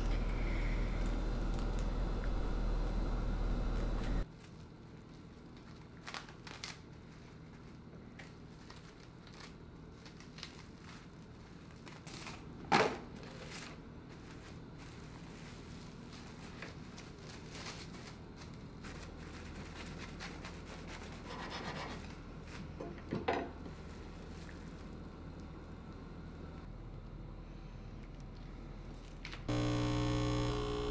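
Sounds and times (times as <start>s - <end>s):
cling wrap crinkling: 4.3s - 12.5s, 13.2s - 21.2s.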